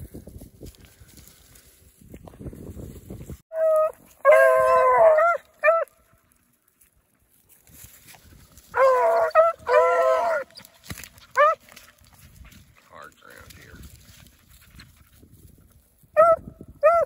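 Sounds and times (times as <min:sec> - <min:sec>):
hounds baying: 0:03.5 - 0:06.0, 0:08.7 - 0:12.0, 0:16.2 - 0:17.0
dogs digging in loose dirt: 0:05.8 - 0:15.6.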